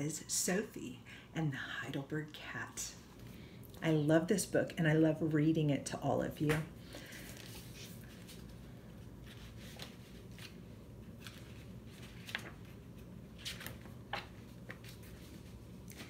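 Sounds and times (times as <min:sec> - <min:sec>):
faint room hum: 0:00.0 - 0:16.0
book pages turning: 0:07.1 - 0:16.0.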